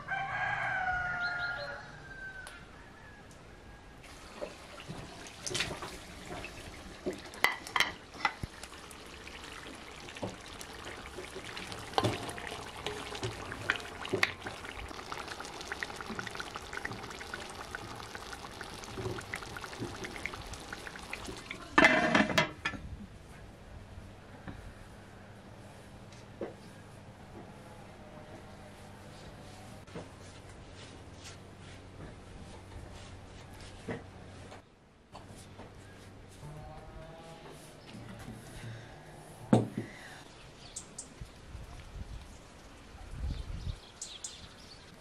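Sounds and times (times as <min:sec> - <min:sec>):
tomatoes sizzling in oil: 0:04.2 - 0:22.0.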